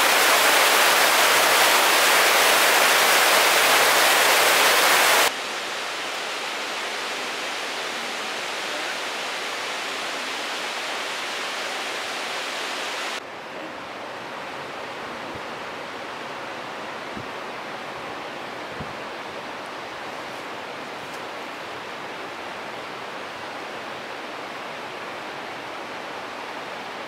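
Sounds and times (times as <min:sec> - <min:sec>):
rushing water: 0:00.0 - 0:27.0.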